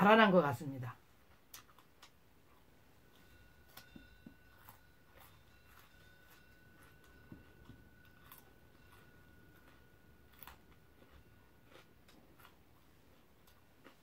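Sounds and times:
faint high-pitched tone: 0:02.8 - 0:11.9.

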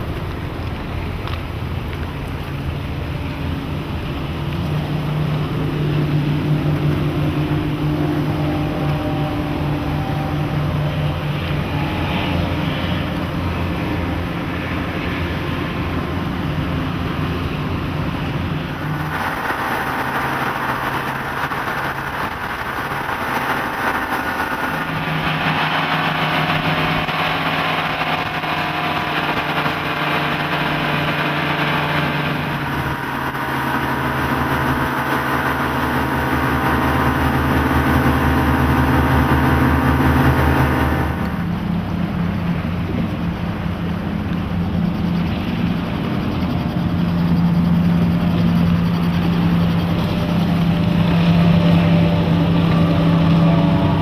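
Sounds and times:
wind and water rushing: 0:00.0 - 0:46.6
outboard motors running: 0:00.0 - 0:54.0.

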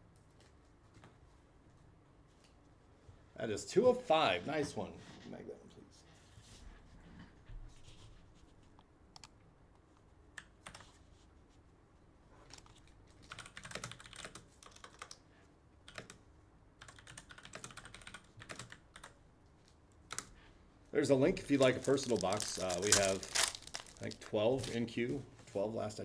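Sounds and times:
typing on computer keyboard: 0:10.4 - 0:11.0, 0:12.5 - 0:15.2, 0:15.8 - 0:16.2, 0:16.8 - 0:19.2, 0:20.1 - 0:20.3.

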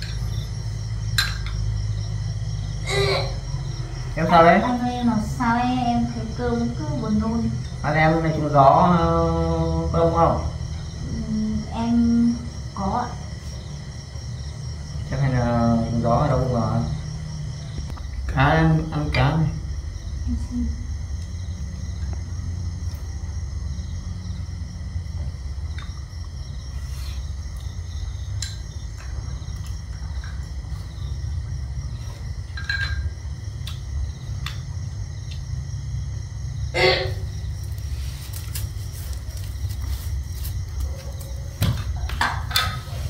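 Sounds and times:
faint insect chirring: 0:00.0 - 0:43.0
dishes clattering: 0:01.1 - 0:01.8, 0:32.4 - 0:33.2, 0:41.6 - 0:43.0.

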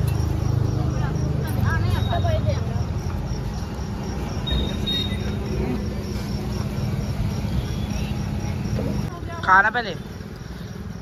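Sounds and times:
low street rumble: 0:00.0 - 0:11.0
faint high chirp: 0:04.4 - 0:05.5, 0:07.3 - 0:09.1.

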